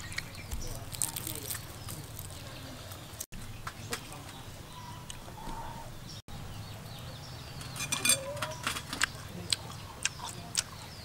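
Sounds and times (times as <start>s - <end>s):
birds chirping faintly: 0.0s - 11.0s
plates and metal tray clinking: 7.6s - 9.0s.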